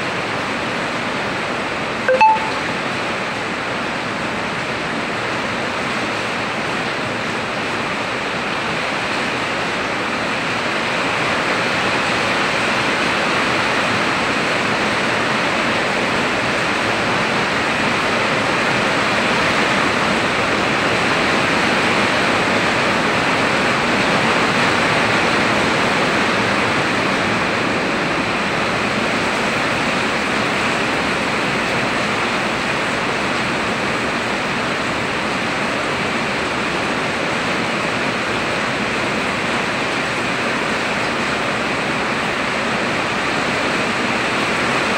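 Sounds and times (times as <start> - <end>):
heavy rain on a roof: 0.0 - 44.9.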